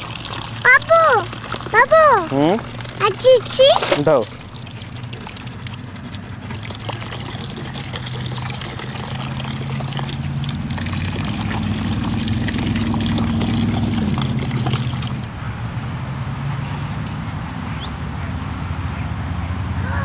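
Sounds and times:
water pouring into plastic bowl: 0.0 - 15.3
low rising tone: 10.2 - 18.9.

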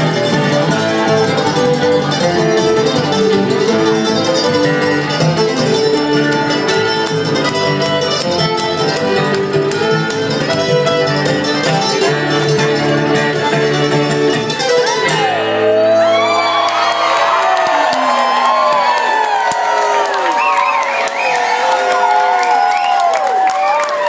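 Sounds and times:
bluegrass band playing: 0.0 - 16.6
crowd whooping and cheering: 14.6 - 24.0.

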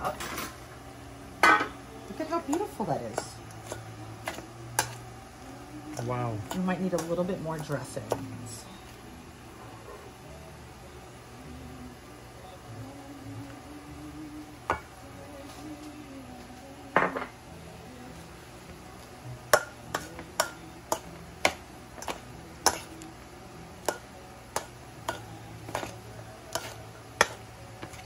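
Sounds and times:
metal tongs clinking in steel bowl: 1.4 - 5.0, 5.9 - 8.6, 19.5 - 23.0, 23.8 - 28.0.

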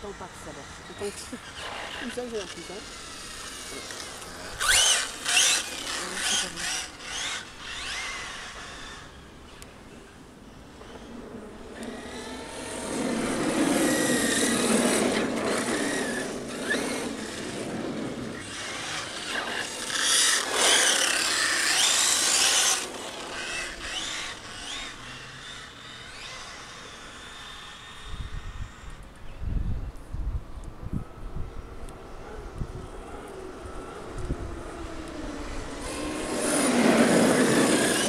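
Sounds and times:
electric motor whining: 0.0 - 9.7, 10.7 - 29.4, 30.9 - 38.0.

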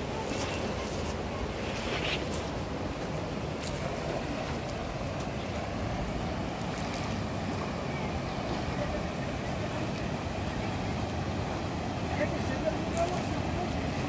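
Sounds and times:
fast-flowing river roar: 0.0 - 14.0.

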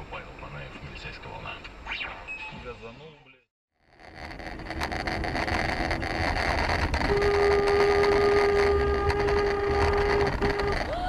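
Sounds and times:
engine and road rumble: 3.8 - 11.0
car horn blast: 7.1 - 10.8.

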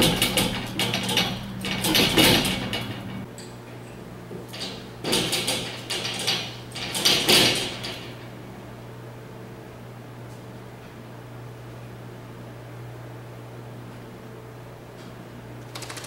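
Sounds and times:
metal gate rattling: 0.0 - 3.3, 4.5 - 8.2.

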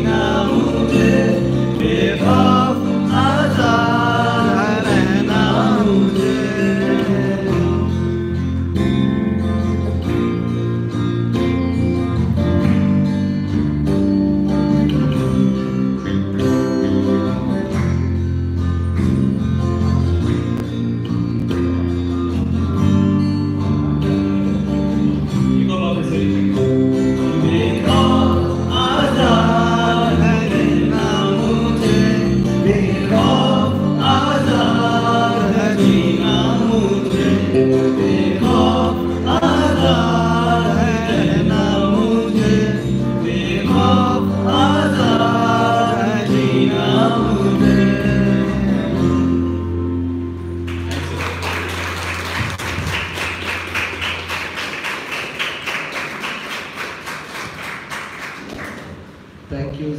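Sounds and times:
man singing into a microphone: 0.0 - 8.4, 25.6 - 49.6
bass guitar: 0.0 - 54.3
acoustic guitar: 0.0 - 59.5.

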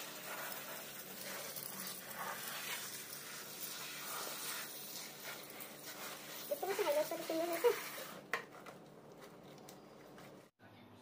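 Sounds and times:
shower sprayer hissing and splashing: 0.0 - 8.3.

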